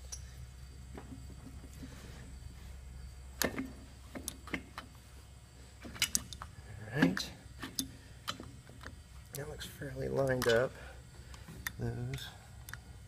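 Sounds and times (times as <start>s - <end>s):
low steady hum: 0.0s - 13.0s
metal parts clicking and tapping: 5.8s - 9.0s, 10.2s - 10.7s.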